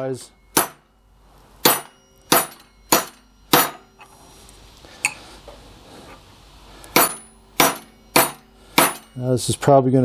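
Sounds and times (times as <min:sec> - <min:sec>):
hammer striking metal: 0:00.0 - 0:01.0, 0:01.6 - 0:04.1, 0:06.9 - 0:09.5.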